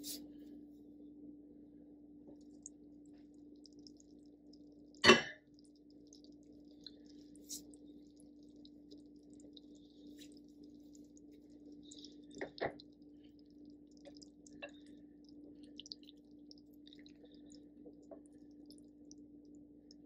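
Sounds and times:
steady low hum: 0:00.0 - 0:20.0
faint crackles and ticks: 0:02.2 - 0:20.0.

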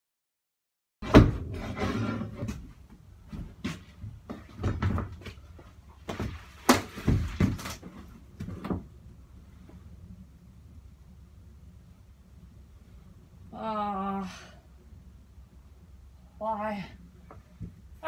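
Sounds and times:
wooden knocks and creaks: 0:01.0 - 0:08.9.

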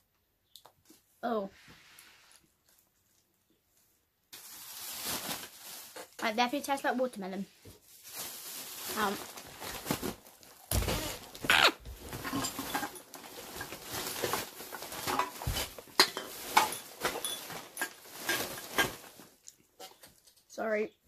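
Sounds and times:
plastic candy packaging crinkling: 0:04.3 - 0:20.4
rustling against microphone: 0:08.0 - 0:20.1.

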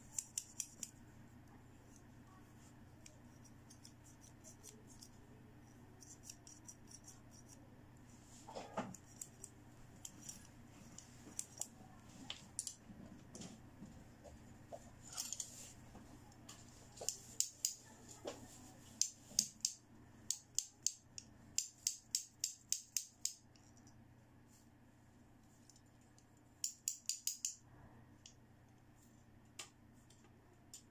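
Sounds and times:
plastic toy scissors clicking: 0:00.1 - 0:00.9, 0:06.0 - 0:07.6, 0:19.0 - 0:23.7, 0:26.6 - 0:27.6.

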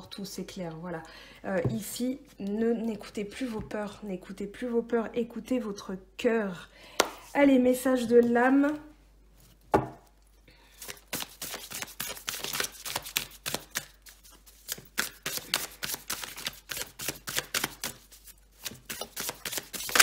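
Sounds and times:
cards being shuffled: 0:10.8 - 0:20.0.

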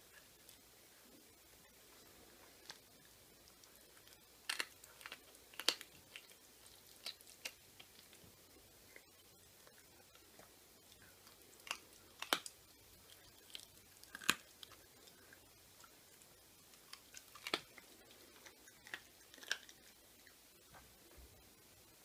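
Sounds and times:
puppy gnawing: 0:00.0 - 0:20.4
bone crunching: 0:03.6 - 0:08.2, 0:11.2 - 0:14.8, 0:16.8 - 0:17.8.

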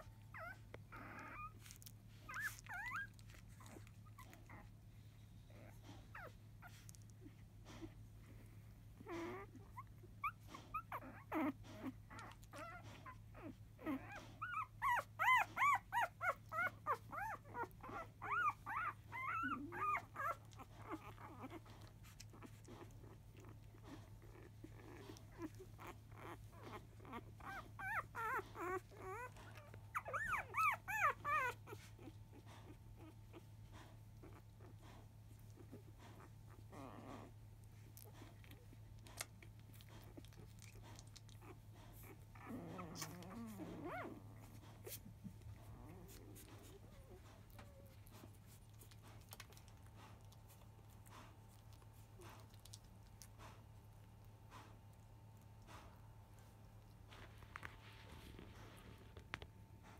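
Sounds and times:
puppies squealing and whimpering: 0:00.0 - 0:04.8, 0:09.0 - 0:49.6.

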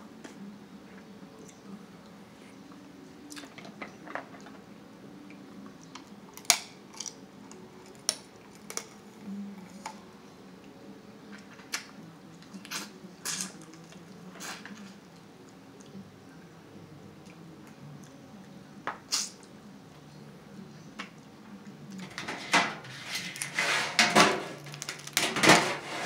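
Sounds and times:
eating sounds: 0:01.4 - 0:03.7, 0:11.6 - 0:16.1
crab shells cracking: 0:06.4 - 0:07.2, 0:24.6 - 0:25.2.

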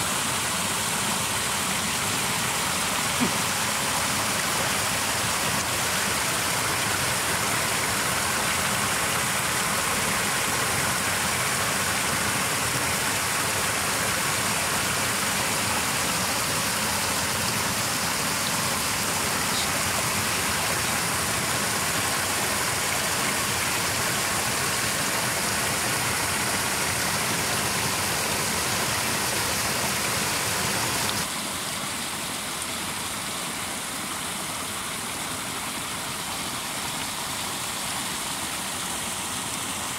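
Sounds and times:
water pouring into pit: 0:00.0 - 0:33.9.

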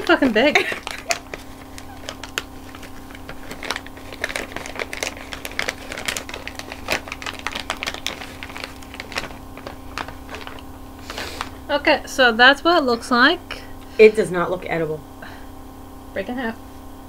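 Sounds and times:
candy wrapper crinkling: 0:00.0 - 0:11.6.

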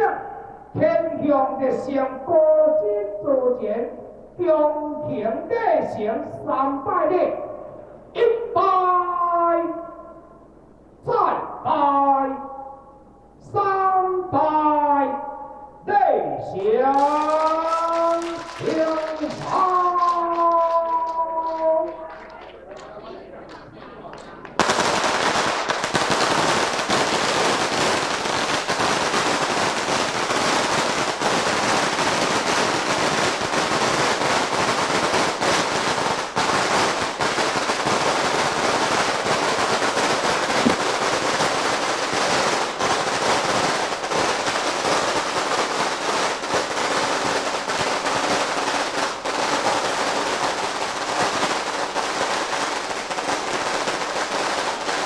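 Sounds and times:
firecrackers crackling: 0:16.5 - 0:55.0.

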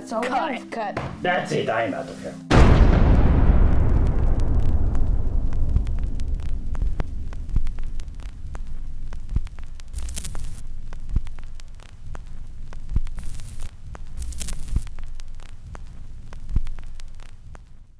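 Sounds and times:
film crackle and pops: 0:02.5 - 0:17.9
low hum: 0:02.5 - 0:17.9
hiss bursts: 0:07.5 - 0:17.6.

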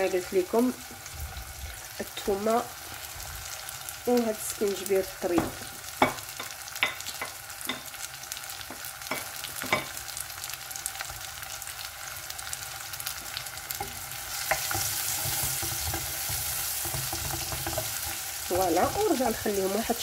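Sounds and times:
onions sizzling in oil: 0:00.0 - 0:20.0
wooden spoon stirring: 0:13.8 - 0:19.5.

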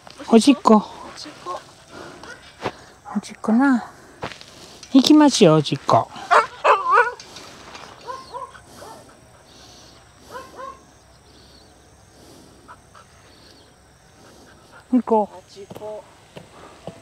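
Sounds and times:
dog whining: 0:06.2 - 0:07.2, 0:08.0 - 0:09.0
dog yelping: 0:06.2 - 0:07.2, 0:08.0 - 0:09.2, 0:10.3 - 0:10.9.

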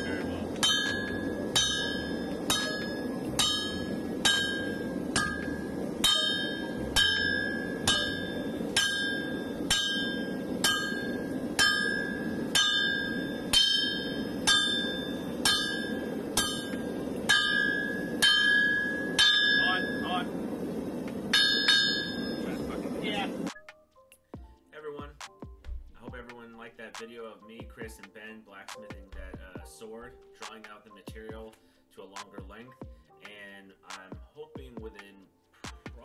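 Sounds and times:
sledgehammer striking steel on anvil: 0:00.0 - 0:20.1, 0:21.3 - 0:22.5.

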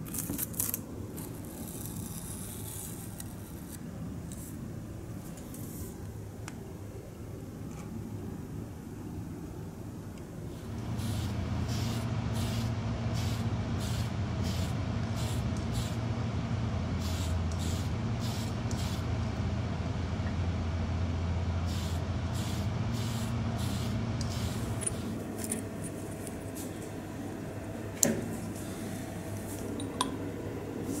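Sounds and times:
low machine hum: 0:00.0 - 0:31.0
spray paint hissing bursts: 0:10.9 - 0:16.0, 0:17.0 - 0:19.1, 0:21.7 - 0:25.2.

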